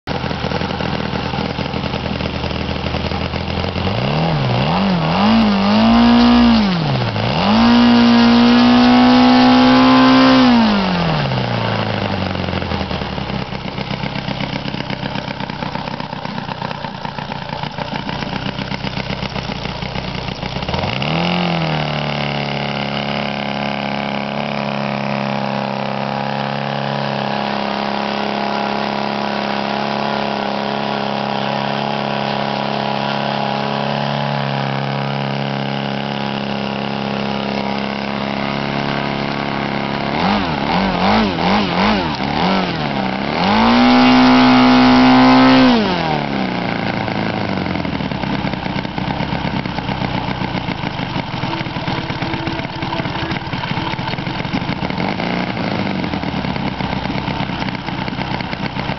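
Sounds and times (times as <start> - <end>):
model airplane engine revving: 0.1 - 58.9.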